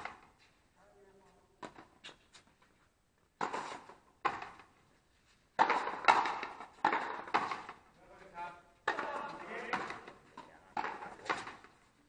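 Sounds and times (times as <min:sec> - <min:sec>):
ball slapping off wall: 0:03.4 - 0:04.7, 0:05.6 - 0:07.8, 0:08.8 - 0:11.7
racket hitting ball: 0:03.4 - 0:04.7, 0:05.6 - 0:07.8, 0:08.8 - 0:11.8.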